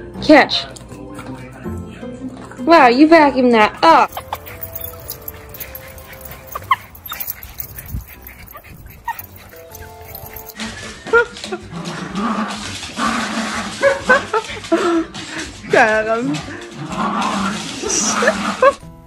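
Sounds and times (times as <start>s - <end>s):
background music: 0.0s - 19.0s
small dog yipping and whining: 4.1s - 10.6s.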